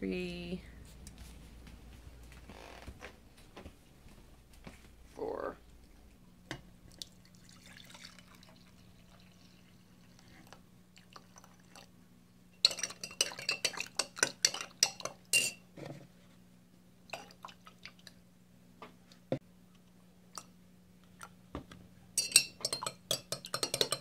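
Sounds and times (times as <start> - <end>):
steady low hum: 0.0 - 11.1
coffee pouring into glass jar: 7.0 - 11.9
spoon clinking against glass: 14.5 - 15.6, 22.2 - 24.0
spoon taps on glass: 22.2 - 24.0.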